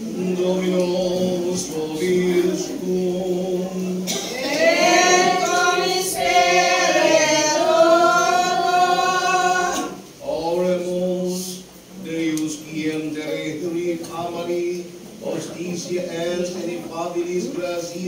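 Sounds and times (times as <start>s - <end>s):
choir singing a chant: 0.0s - 11.4s.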